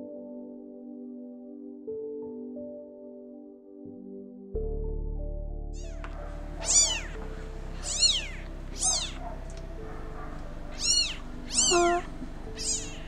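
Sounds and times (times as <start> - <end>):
steady low drone: 4.9 - 13.0
kitten mewing: 5.8 - 6.0, 6.6 - 9.6, 10.7 - 13.0.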